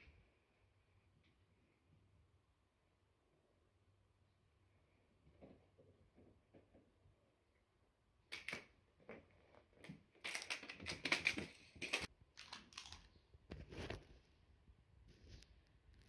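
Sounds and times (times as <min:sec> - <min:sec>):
candy wrapper crinkling: 0:10.2 - 0:13.2.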